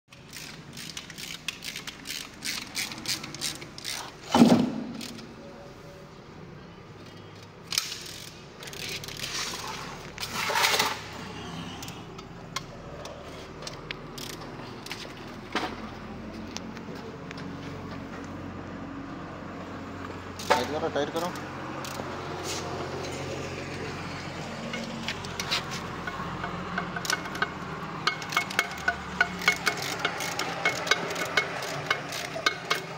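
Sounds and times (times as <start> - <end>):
ratchet-like rasping: 0.1 - 4.2, 24.7 - 32.9
metal tools clicking and clinking: 0.1 - 5.3, 24.7 - 32.9.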